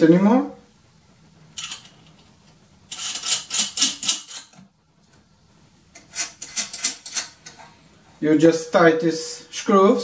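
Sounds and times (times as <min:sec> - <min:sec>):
small metal parts clicking and rattling: 0:01.6 - 0:02.0, 0:02.9 - 0:04.6, 0:06.0 - 0:07.4.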